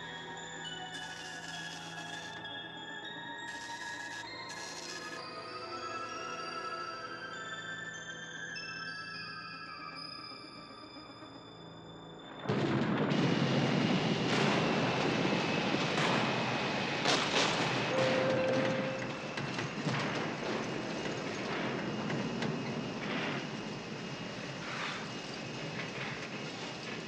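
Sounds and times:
faint high whine: 0:09.0 - 0:27.0
jet engines droning: 0:12.0 - 0:27.0
sharp thunder cracks: 0:12.4 - 0:22.0
heavy rain: 0:12.6 - 0:23.8.

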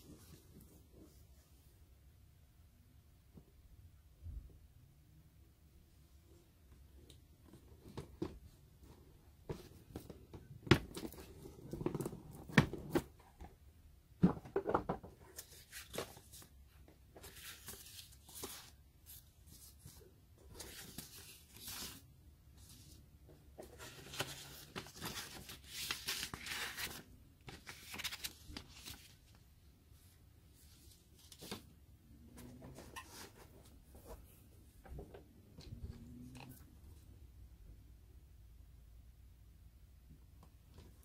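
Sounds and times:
paper sheets rustling: 0:23.7 - 0:29.3.

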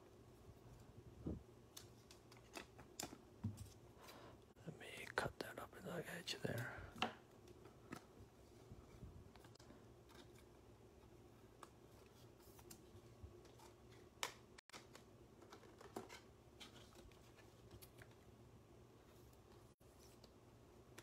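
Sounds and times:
trading cards being handled: 0:01.7 - 0:04.2.

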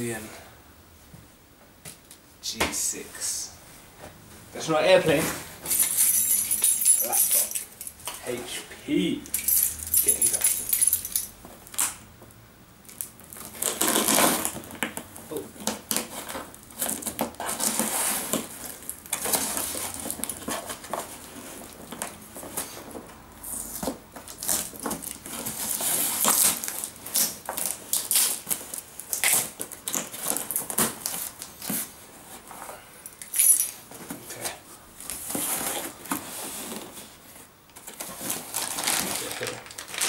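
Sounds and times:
tool scratching packing tape: 0:13.4 - 0:14.7.

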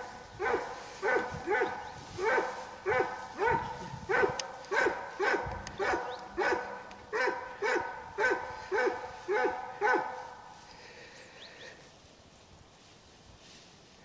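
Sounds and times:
dog barking rhythmically: 0:00.4 - 0:10.4.

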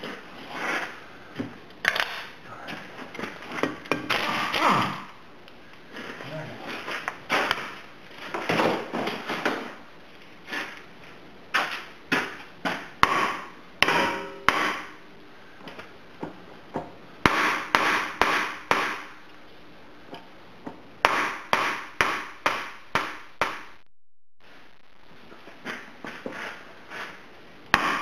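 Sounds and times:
hammer striking metal: 0:13.0 - 0:15.0.

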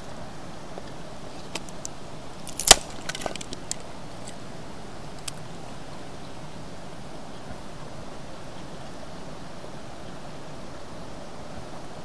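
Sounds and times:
wood cracking and clicking: 0:01.5 - 0:04.4.

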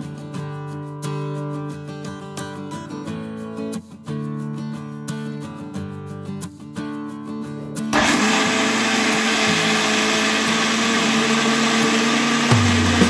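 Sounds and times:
mixer grinder whirring: 0:08.0 - 0:13.0.

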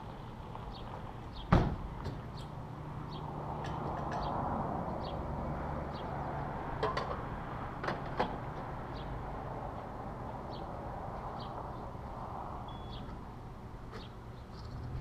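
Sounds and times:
low hum and rumble: 0:14.4 - 0:15.0.

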